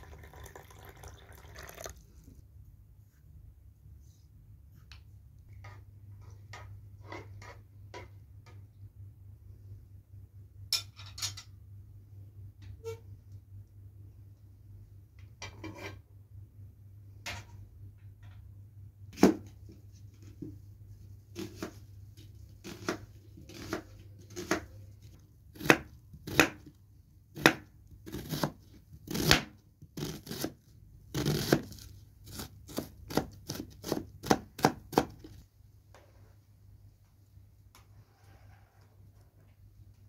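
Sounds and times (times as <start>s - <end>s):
knife chopping onion on board: 22.6s - 24.8s, 25.5s - 26.7s, 27.3s - 35.4s.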